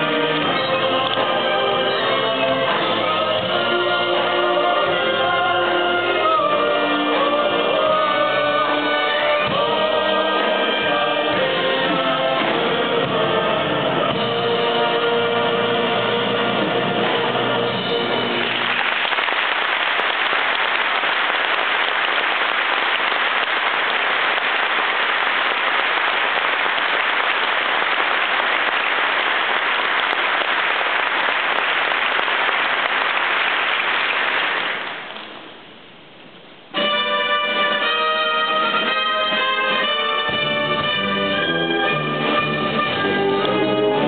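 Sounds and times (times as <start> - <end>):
wind band playing: 0.0 - 18.8, 36.7 - 44.0
audience applause: 18.3 - 35.3.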